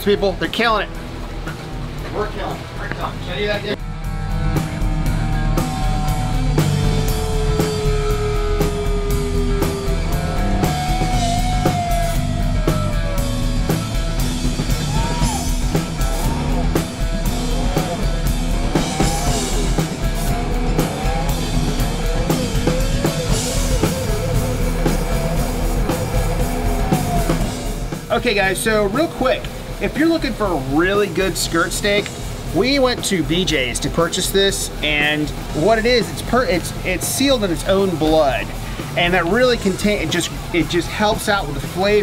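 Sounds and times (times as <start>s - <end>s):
bass guitar: 0.0s - 42.0s
drum beat: 0.0s - 42.0s
lead guitar bending notes: 0.0s - 42.0s.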